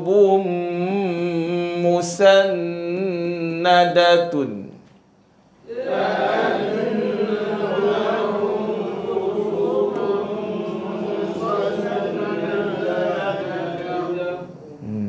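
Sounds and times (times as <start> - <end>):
group chanting in unison: 5.7 - 14.6.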